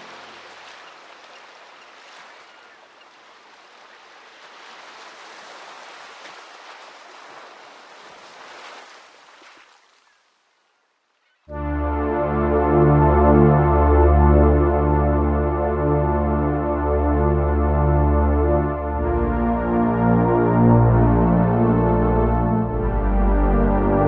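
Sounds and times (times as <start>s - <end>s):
ocean surf washing on shore: 0.0s - 9.9s.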